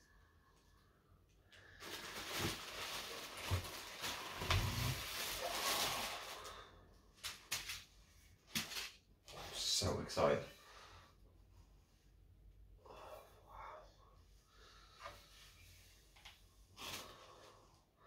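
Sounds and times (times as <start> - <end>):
bubble wrap crinkling: 1.6 - 9.0
plastic bag rustles and knocks: 1.8 - 6.2.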